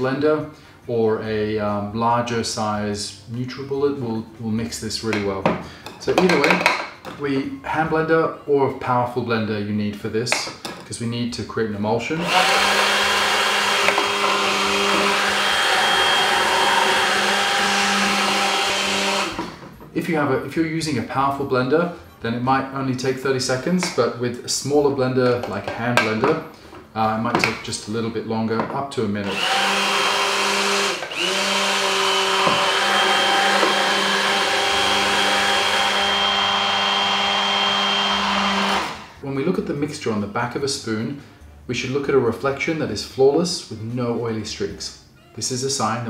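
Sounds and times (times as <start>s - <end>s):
hand blender running in liquid: 12.2s - 19.3s, 29.3s - 39.1s.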